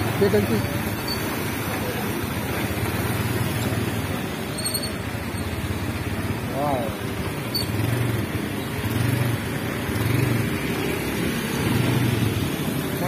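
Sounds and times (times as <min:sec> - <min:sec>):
vehicle engine humming: 0:00.0 - 0:13.0
tyres hissing on wet road: 0:05.6 - 0:13.0.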